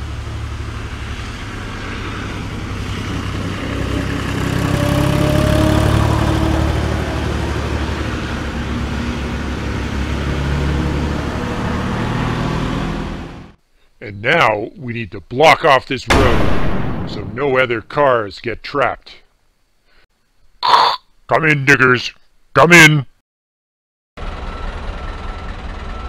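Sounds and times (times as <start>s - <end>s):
truck engine droning: 0.0s - 13.6s, 24.2s - 26.0s.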